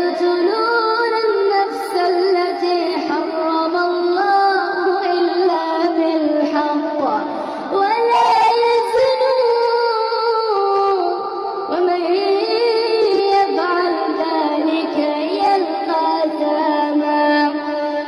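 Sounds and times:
person singing long notes: 8.0s - 8.9s.

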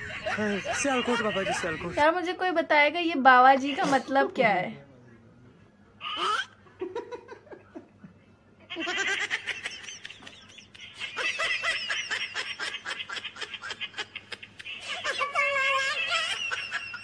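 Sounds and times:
loud laughter: 0.0s - 2.1s, 8.7s - 17.0s.

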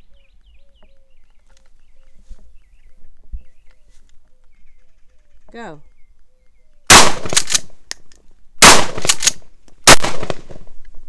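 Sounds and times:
shotgun shots with echoes: 6.9s - 7.6s, 8.6s - 9.3s, 9.9s - 10.5s.

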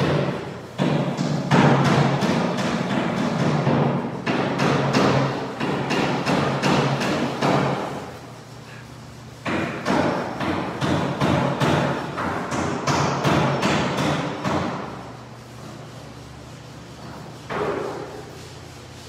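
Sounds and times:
heavy knocks echoing: 0.0s - 7.9s, 9.4s - 14.9s.

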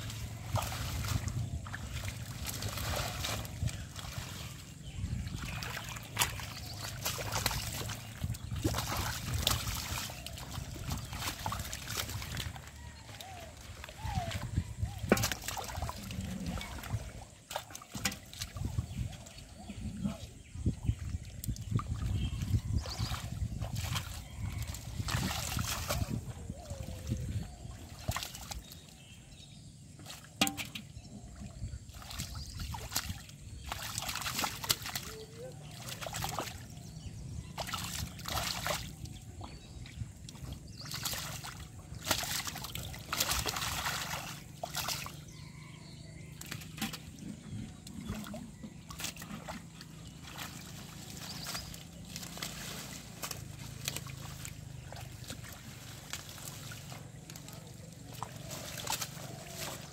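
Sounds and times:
hands sloshing in muddy water: 0.0s - 59.9s
sharp wet slaps: 5.4s - 12.6s, 13.2s - 15.9s, 32.0s - 36.7s, 37.6s - 39.0s, 40.8s - 45.2s, 50.3s - 59.9s.

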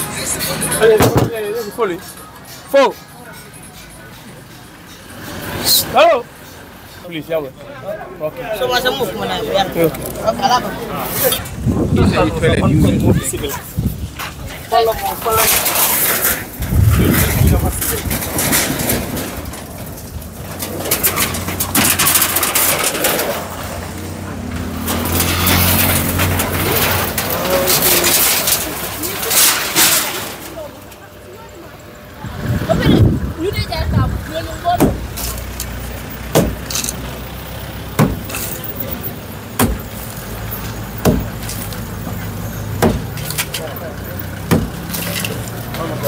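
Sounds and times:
corrugated iron clattering and scraping: 0.0s - 31.2s, 32.2s - 46.0s
sledgehammer striking masonry: 34.8s - 35.2s, 36.3s - 36.7s, 37.9s - 38.5s, 39.5s - 40.0s, 40.9s - 41.5s, 42.8s - 43.3s, 44.4s - 45.2s.

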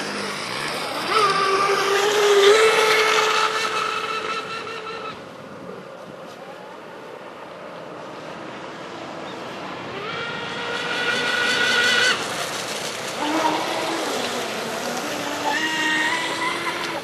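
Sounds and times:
electric motor whining: 0.0s - 5.1s, 13.1s - 17.0s.

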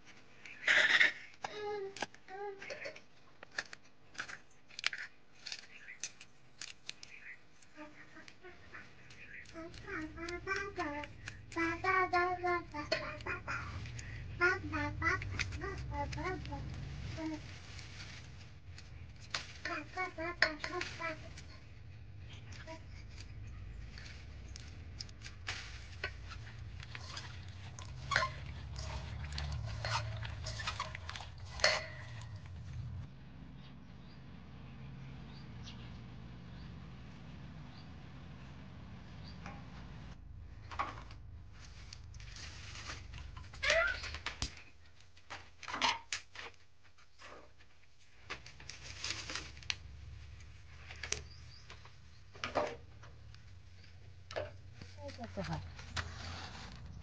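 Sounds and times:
wooden sticks clacking: 8.2s - 33.0s, 40.7s - 46.6s
wet crunching and rustling of onions: 15.2s - 33.0s.

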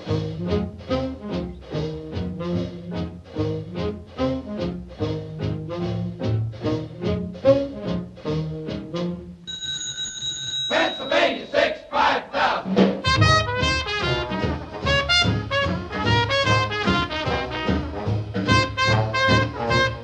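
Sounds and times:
brass-led swing music: 0.0s - 9.4s, 12.6s - 20.0s
short ringing tone: 9.5s - 11.5s.

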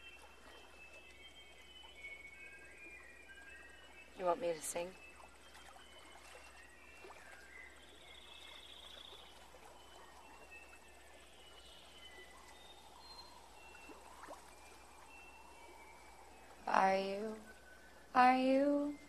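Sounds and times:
bird chirps: 0.0s - 19.0s
low natural background: 0.0s - 19.0s.

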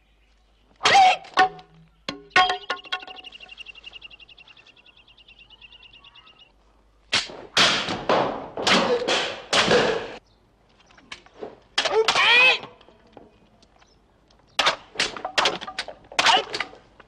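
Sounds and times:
person shouting: 11.9s - 12.7s.

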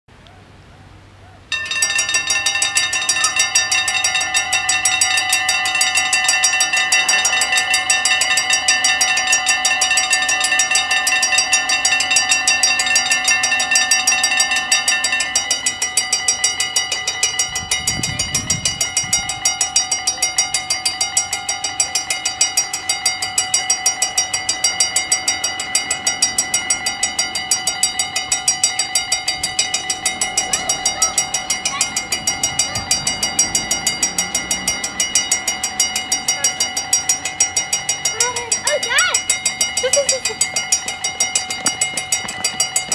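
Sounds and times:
level-crossing bells ringing: 1.5s - 42.9s.

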